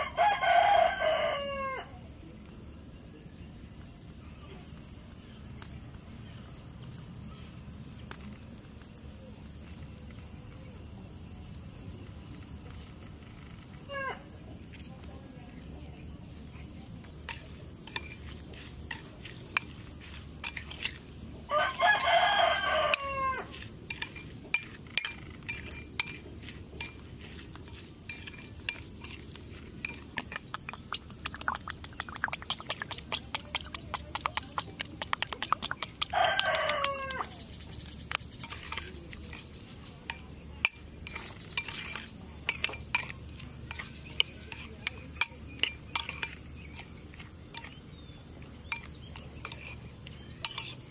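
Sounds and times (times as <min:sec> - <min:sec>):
rooster crowing: 0:00.0 - 0:02.0, 0:21.4 - 0:23.6, 0:36.0 - 0:37.4
metal spoon clinking on ceramic bowl: 0:23.9 - 0:26.2, 0:27.7 - 0:31.6, 0:38.4 - 0:39.0, 0:40.0 - 0:46.9, 0:47.5 - 0:47.8, 0:48.6 - 0:49.8, 0:50.4 - 0:50.9.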